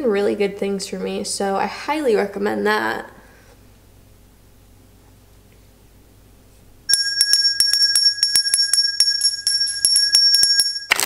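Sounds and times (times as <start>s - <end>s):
hand bell ringing rapidly: 6.9s - 11.0s.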